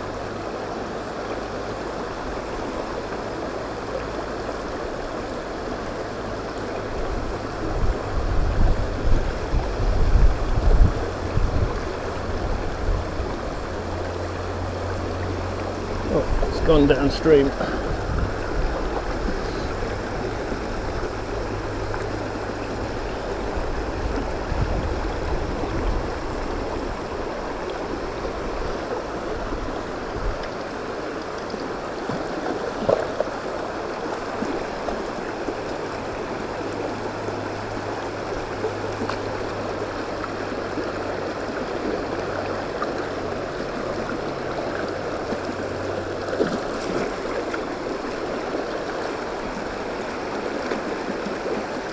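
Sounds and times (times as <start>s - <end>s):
stream rushing over rocks: 0.0s - 51.9s
water splash: 45.2s - 47.9s.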